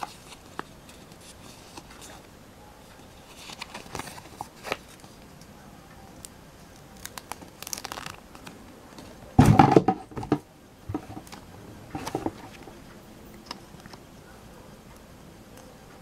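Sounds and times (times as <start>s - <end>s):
paper crinkling: 3.1s - 5.2s, 6.7s - 9.2s.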